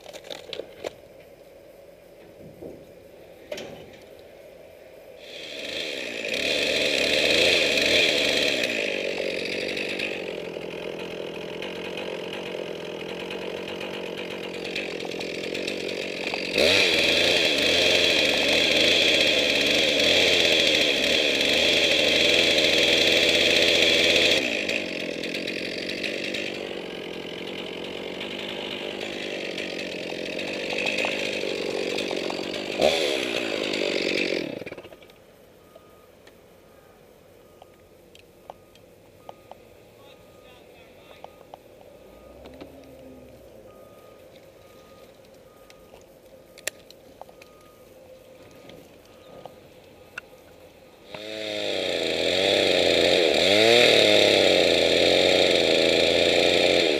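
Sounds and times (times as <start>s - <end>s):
chainsaw cutting wood: 5.2s - 35.2s, 50.5s - 56.9s.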